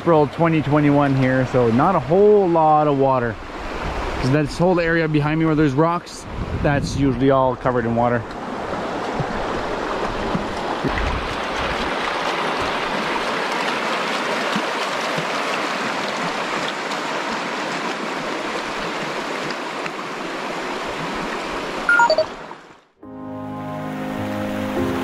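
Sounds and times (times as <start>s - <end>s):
river water rushing over rocks: 8.4s - 22.8s.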